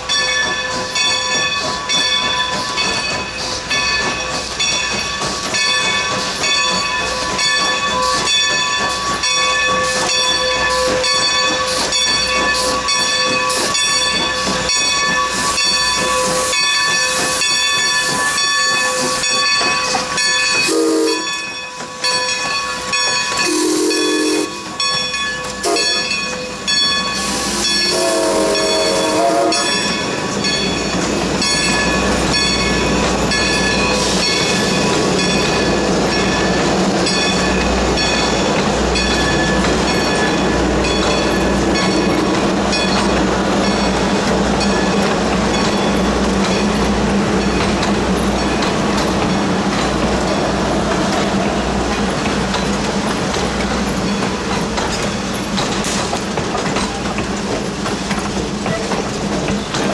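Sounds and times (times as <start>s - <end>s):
train rumbling past: 0.0s - 59.9s
wheels clacking over rail joints: 0.0s - 59.9s
steam whistle blasts: 20.7s - 21.4s, 23.4s - 24.7s, 25.6s - 26.0s, 27.2s - 29.8s.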